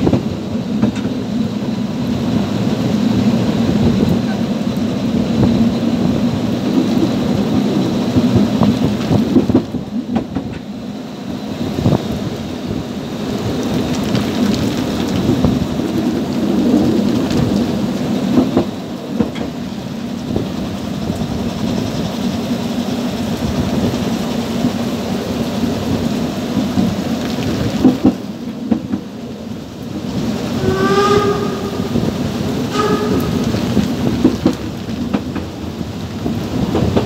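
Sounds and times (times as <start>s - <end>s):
train wheels rumbling on rails: 0.0s - 37.0s
rain hissing: 10.8s - 37.0s
steam locomotive whistle: 30.4s - 33.9s.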